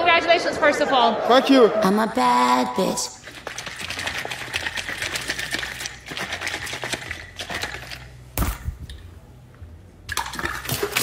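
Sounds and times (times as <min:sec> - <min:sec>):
chunks rattling in plastic bottle: 0:03.2 - 0:08.1.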